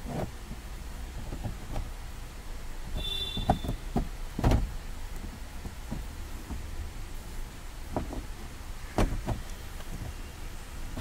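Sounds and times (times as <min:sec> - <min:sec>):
knocks on plastic trim panel: 0:03.3 - 0:04.7.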